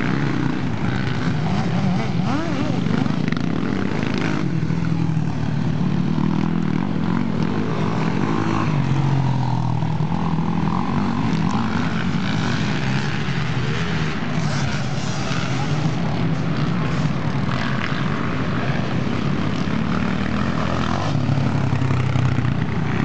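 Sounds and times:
quad bike engines revving: 0.0 - 23.0.

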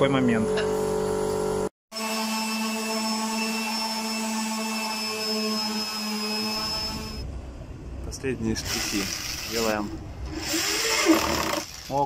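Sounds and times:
electric drill whining: 2.0 - 7.2, 10.3 - 11.8.

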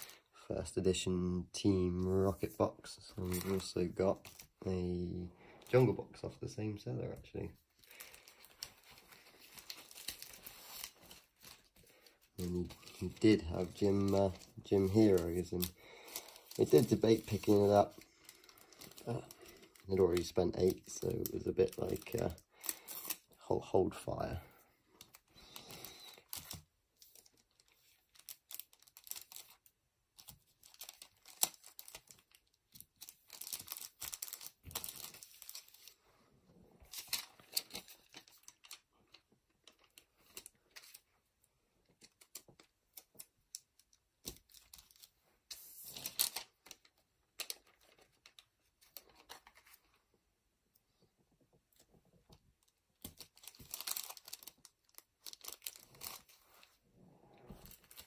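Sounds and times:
plastic bags crinkling: 7.7 - 23.3, 25.0 - 36.0, 53.0 - 56.7.

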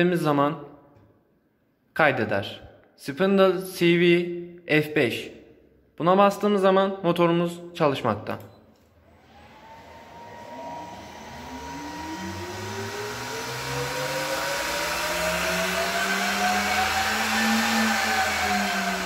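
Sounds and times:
spindle motor whine spinning up: 9.0 - 19.0.

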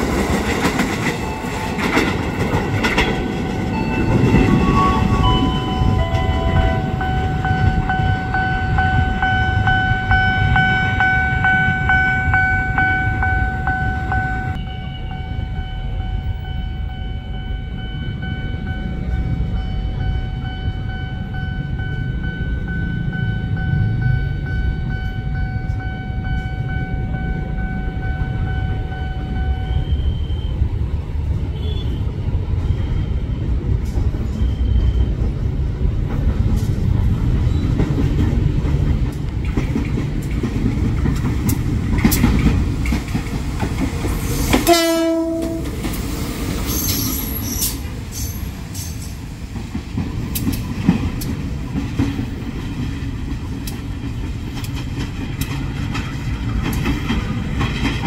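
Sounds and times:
locomotive engine and wheels: 0.0 - 58.0
train horn: 44.5 - 45.8.

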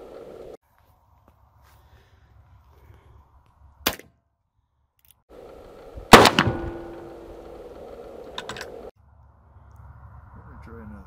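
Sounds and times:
revolver shots: 6.1 - 7.4.

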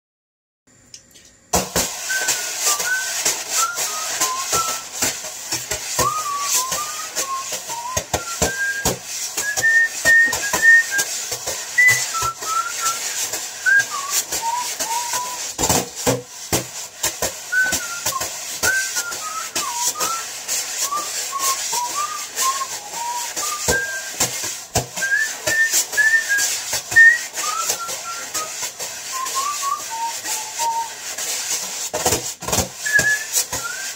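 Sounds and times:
drum brushes on a box: 1.5 - 33.9
man whistling a melody: 2.0 - 15.6, 17.4 - 31.0, 32.7 - 33.9.

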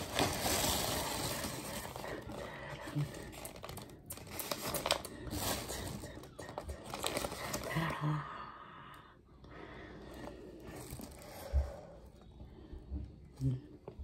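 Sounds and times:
plastic and paper bags crinkling: 0.0 - 8.1, 10.1 - 11.8.

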